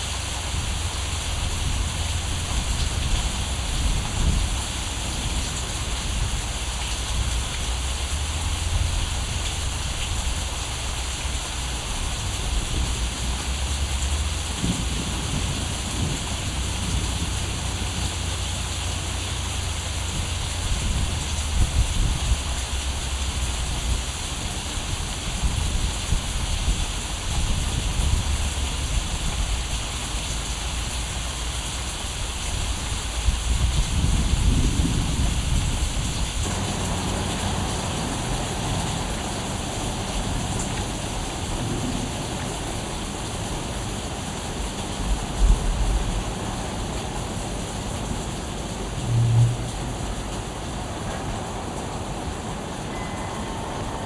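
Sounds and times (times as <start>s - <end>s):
steady rain-like hiss: 0.0s - 54.0s
steady rushing noise: 31.9s - 54.0s
deep uneven rumble: 33.6s - 52.6s.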